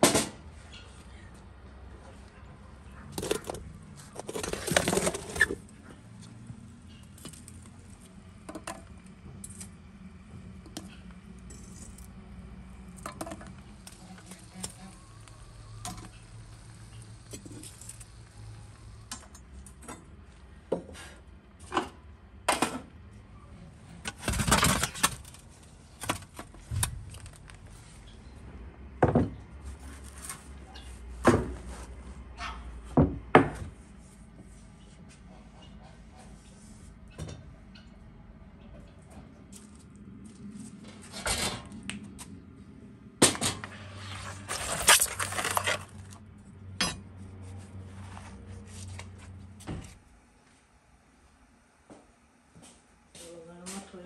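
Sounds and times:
metal pans scraping and clanking: 0:03.1 - 0:05.7, 0:43.4 - 0:46.2.

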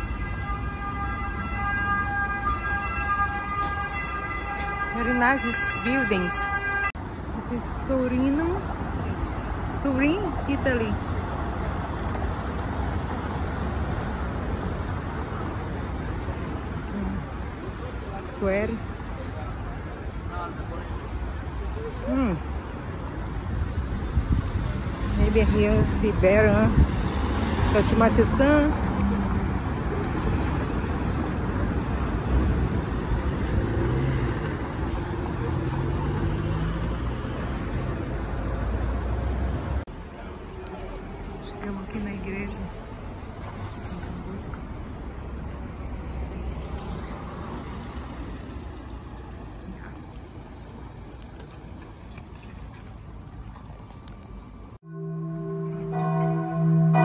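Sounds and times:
road traffic passing: 0:00.0 - 0:57.0
cars driving past: 0:20.6 - 0:57.0.

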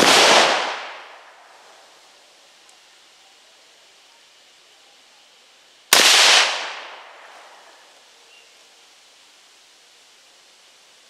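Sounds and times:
rifle shot: 0:00.0 - 0:01.2, 0:05.9 - 0:07.2.

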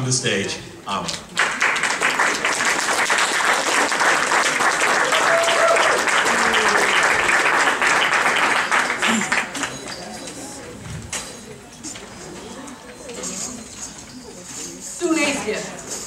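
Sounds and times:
audience applauding: 0:01.3 - 0:10.0.

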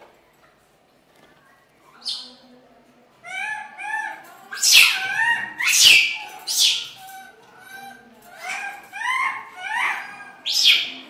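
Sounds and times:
monkeys calling: 0:03.2 - 0:11.0
monkey screeches: 0:03.3 - 0:10.9.

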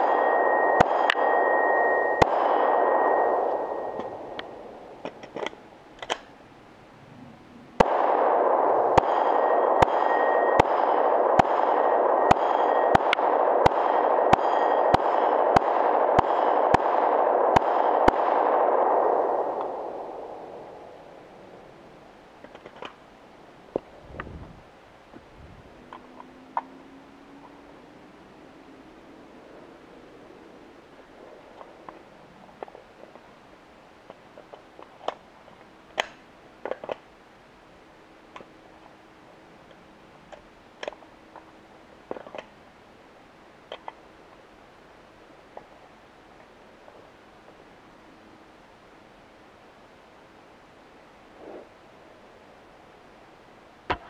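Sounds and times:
pistol shots: 0:00.0 - 0:04.6, 0:07.8 - 0:20.8
steel targets ringing: 0:00.0 - 0:04.7, 0:08.9 - 0:15.7
steady hiss: 0:00.0 - 0:54.0.

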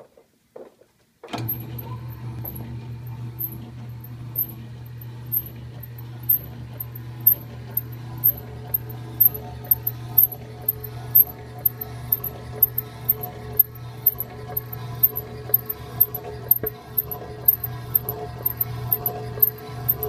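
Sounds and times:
motor starting clunk: 0:01.2 - 0:20.0
mixer motor humming: 0:01.4 - 0:20.0
sharp ticking: 0:05.3 - 0:20.0.

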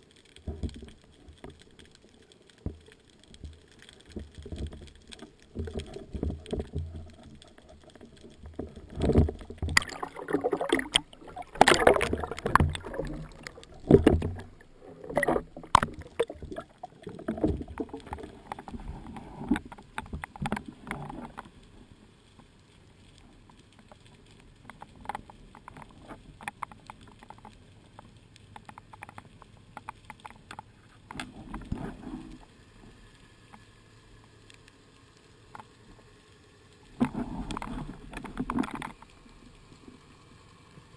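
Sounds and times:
faint clicks: 0:00.0 - 0:40.9
underwater knocks and bumps: 0:00.4 - 0:01.6, 0:02.6 - 0:21.5, 0:24.6 - 0:27.6, 0:28.5 - 0:32.4, 0:37.0 - 0:39.1
rushing water: 0:04.0 - 0:27.6, 0:36.8 - 0:40.0.

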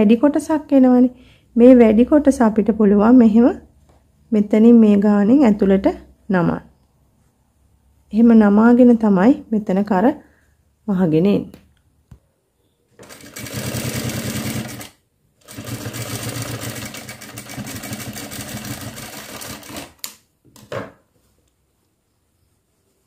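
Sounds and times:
sewing machine stitching: 0:13.0 - 0:20.2.

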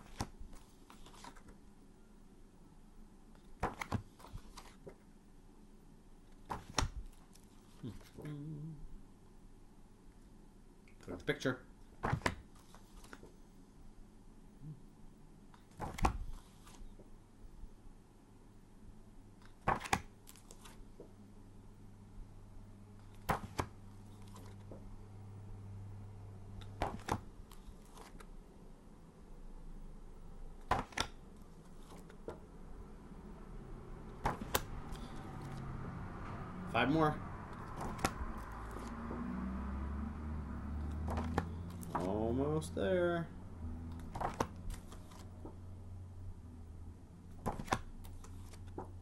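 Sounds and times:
paper flashcards rustling: 0:00.0 - 0:01.6, 0:03.3 - 0:05.0, 0:06.3 - 0:08.2, 0:12.0 - 0:13.4, 0:15.6 - 0:17.1, 0:19.4 - 0:21.2, 0:23.0 - 0:24.9, 0:26.6 - 0:28.4, 0:30.6 - 0:32.4, 0:34.1 - 0:35.7, 0:37.5 - 0:39.1, 0:40.8 - 0:42.2, 0:43.9 - 0:45.6, 0:47.3 - 0:49.0.

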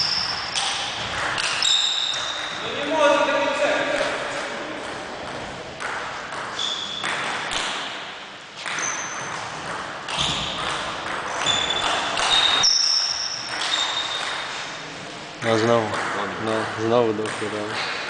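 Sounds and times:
ping pong ball clicking: 0:00.5 - 0:02.4
high-pitched squeaks: 0:01.4 - 0:02.7.

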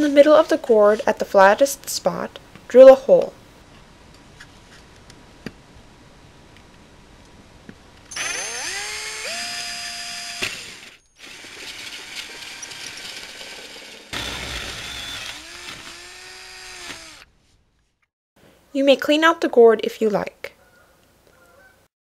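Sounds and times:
hole saw cutting through gourd: 0:08.1 - 0:17.2
electric drill whining: 0:08.1 - 0:17.3.

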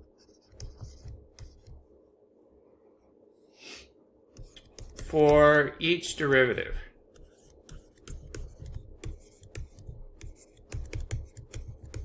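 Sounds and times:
stylus tapping on tablet: 0:00.4 - 0:01.8, 0:04.3 - 0:05.6, 0:07.2 - 0:12.0.

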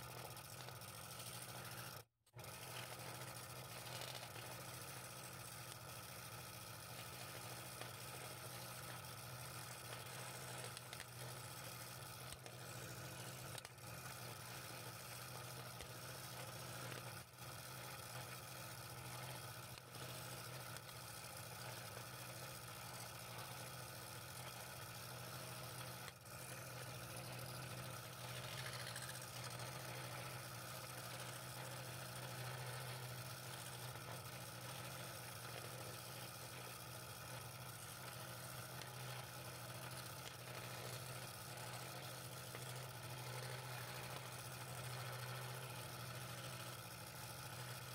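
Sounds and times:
low motor hum: 0:00.0 - 0:47.9
scroll saw cutting wood: 0:00.0 - 0:47.9.

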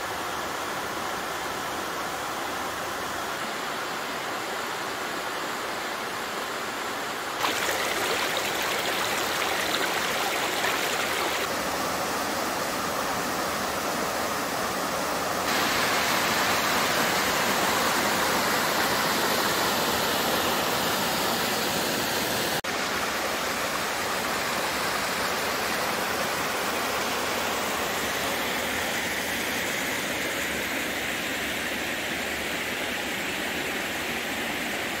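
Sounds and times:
waterfall rushing: 0:07.4 - 0:11.5.

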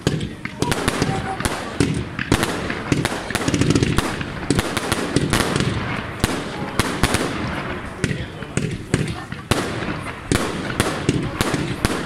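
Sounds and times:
fireworks bangs and cracks: 0:00.0 - 0:12.0
fireworks crackling: 0:00.0 - 0:12.0.

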